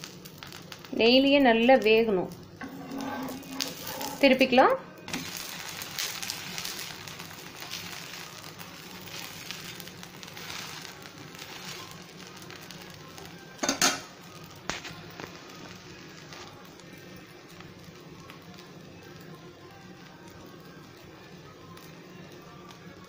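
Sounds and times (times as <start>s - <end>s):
batter sizzling on a griddle: 0.0s - 23.0s
scrape or knock: 2.6s - 4.2s.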